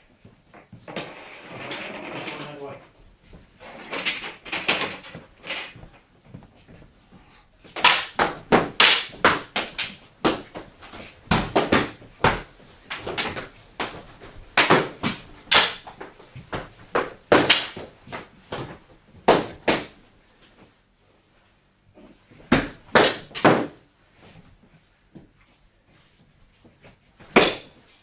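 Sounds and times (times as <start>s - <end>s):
sticks clacking and striking: 7.8s - 10.5s, 14.6s - 16.0s.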